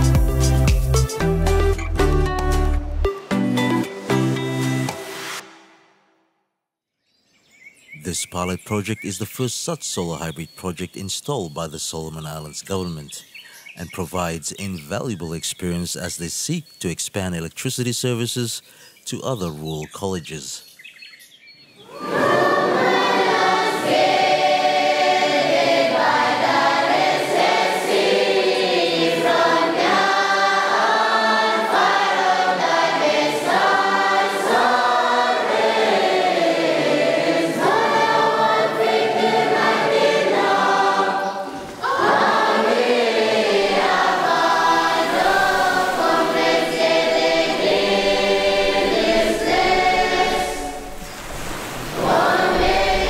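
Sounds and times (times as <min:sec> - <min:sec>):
choir singing: 0:21.8 - 0:53.0.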